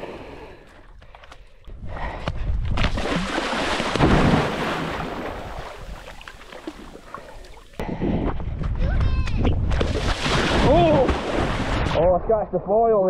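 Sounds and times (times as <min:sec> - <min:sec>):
water splashing and rushing: 0:02.7 - 0:07.8, 0:09.4 - 0:12.5
wind buffeting microphone: 0:07.8 - 0:12.2.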